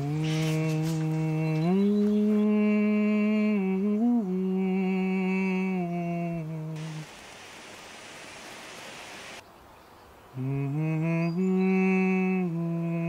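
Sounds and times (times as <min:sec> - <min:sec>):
firework fountain hissing: 0:06.8 - 0:09.4.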